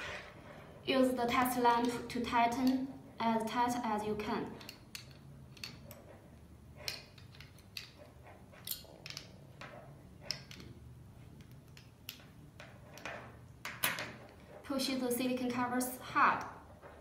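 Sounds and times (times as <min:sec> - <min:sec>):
small metal clicks and scrapes: 0:04.6 - 0:14.7.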